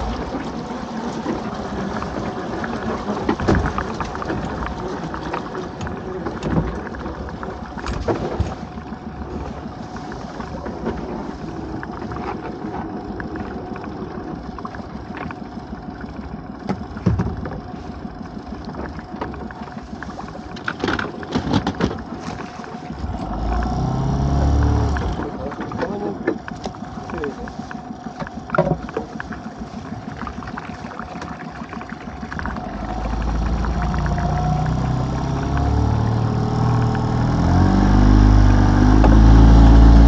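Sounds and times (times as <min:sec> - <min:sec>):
boat engine idling: 0:00.0 - 0:40.0
fishing gear knocking on hull: 0:16.6 - 0:17.8, 0:20.5 - 0:22.6, 0:28.0 - 0:29.4
low rumble: 0:22.0 - 0:40.0.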